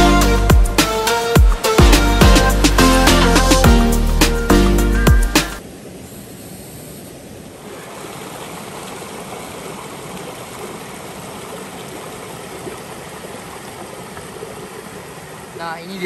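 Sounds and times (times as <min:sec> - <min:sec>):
stream water rushing: 0:05.6 - 0:16.0.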